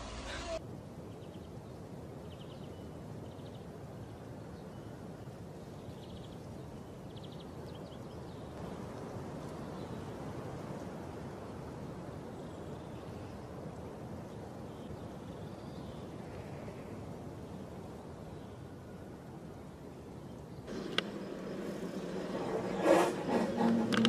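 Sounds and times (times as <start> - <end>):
low outdoor rumble: 20.6 - 24.0.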